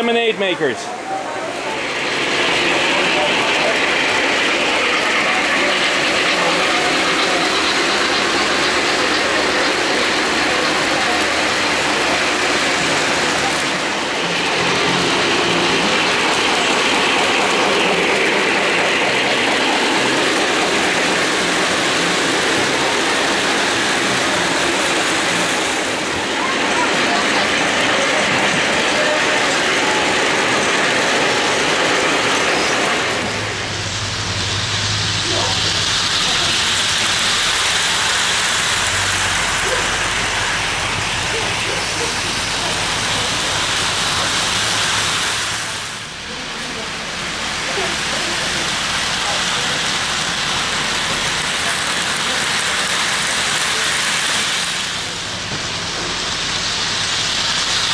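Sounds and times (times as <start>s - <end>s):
model train rolling on rails: 0.0s - 57.9s
steady even hiss: 30.2s - 57.9s.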